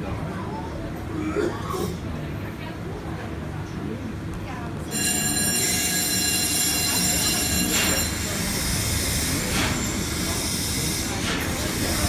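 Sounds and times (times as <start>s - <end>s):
steam engine rumble: 7.2s - 12.0s.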